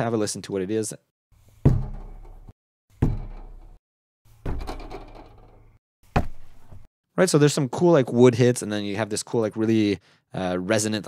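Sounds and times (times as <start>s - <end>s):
wood-like hits: 1.6s - 6.9s
hits on metal barrel ringing: 1.7s - 3.8s.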